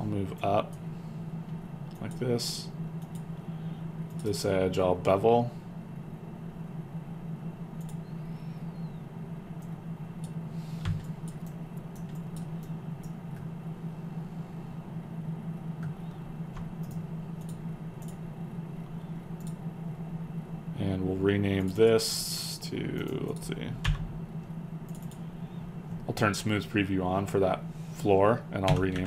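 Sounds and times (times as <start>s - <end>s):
steady low hum: 0.0s - 29.0s
computer mouse clicks: 7.8s - 8.1s, 9.6s - 13.5s, 16.6s - 18.2s, 19.4s - 19.6s, 24.9s - 25.3s.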